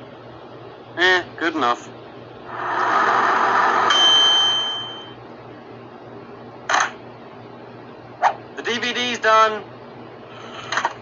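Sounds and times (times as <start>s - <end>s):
microwave oven humming: 0.0s - 11.0s
microwave bell ding: 3.9s - 5.2s.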